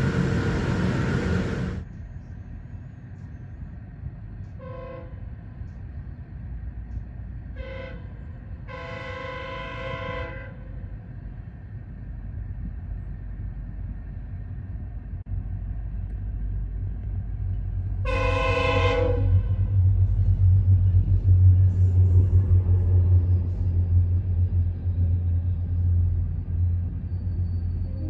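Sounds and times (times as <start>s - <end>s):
train horn blasts: 4.6s - 5.3s, 7.5s - 10.8s, 18.0s - 19.9s
low rumble: 10.7s - 28.0s.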